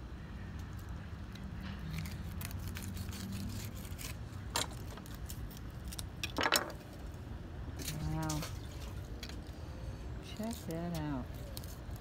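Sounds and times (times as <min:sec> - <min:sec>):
knife scraping fish: 0:01.9 - 0:04.3.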